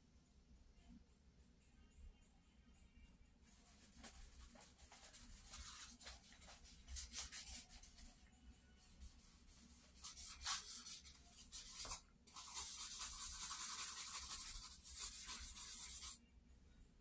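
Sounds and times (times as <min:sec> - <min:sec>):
charcoal rubbing on paper: 0:03.5 - 0:08.1, 0:09.0 - 0:16.2.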